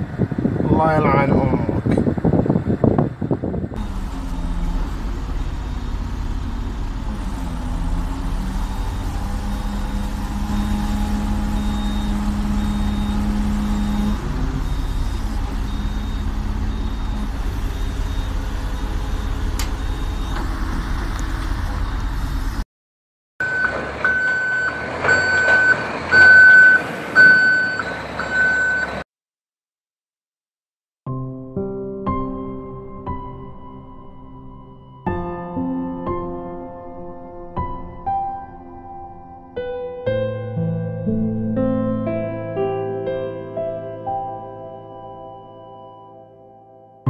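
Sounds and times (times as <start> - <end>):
diesel engine running: 0.0 - 22.6, 23.4 - 29.0
truck reversing beeps: 3.8 - 22.6, 23.4 - 29.1.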